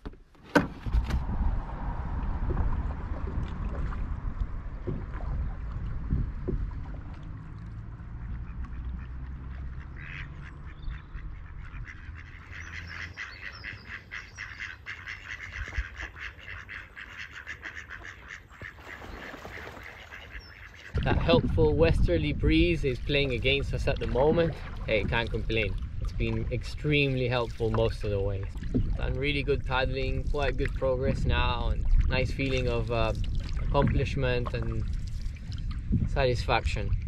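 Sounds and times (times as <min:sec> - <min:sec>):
low rumble: 0:00.7 - 0:12.2, 0:21.0 - 0:37.0
ducks quacking: 0:08.2 - 0:21.2.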